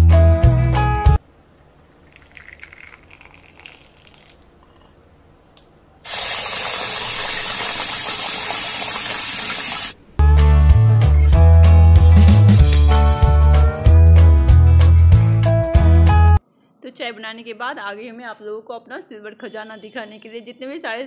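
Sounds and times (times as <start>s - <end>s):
tea trickling into a mug: 1.9s - 4.5s
tap water rushing: 6.1s - 10.0s.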